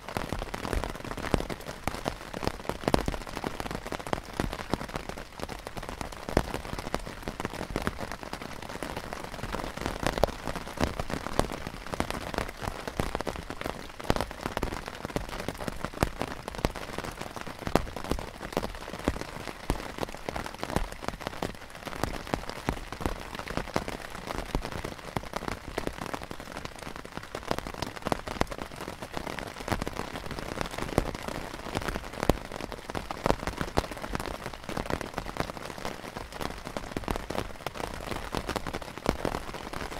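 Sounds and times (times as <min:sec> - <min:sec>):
heavy rain on canvas tent: 0:00.0 - 0:39.9.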